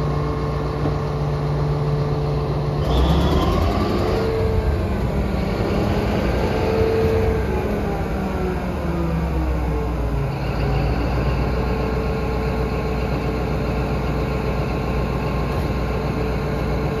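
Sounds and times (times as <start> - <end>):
diesel engine running: 0.0 - 17.0.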